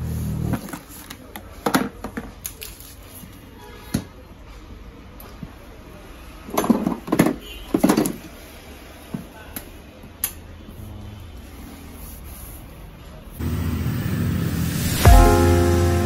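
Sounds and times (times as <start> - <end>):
handling knocks and clunks: 6.5 - 8.3.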